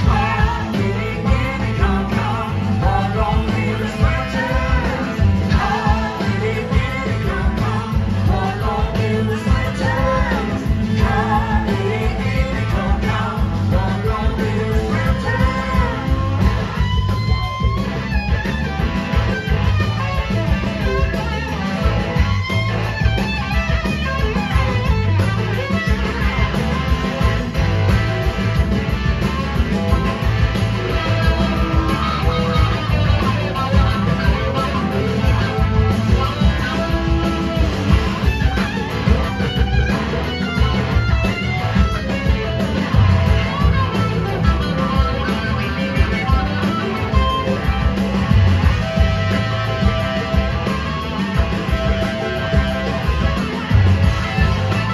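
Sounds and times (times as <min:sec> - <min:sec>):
person singing: 0:00.0 - 0:17.1
electric guitar gliding: 0:00.0 - 0:54.9
rock band playing: 0:00.0 - 0:54.9.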